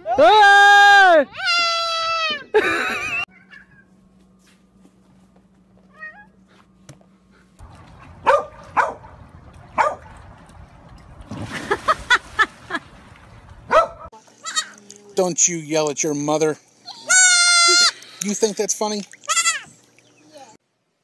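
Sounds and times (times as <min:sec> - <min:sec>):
splash into swimming pool: 0:11.2 - 0:13.7.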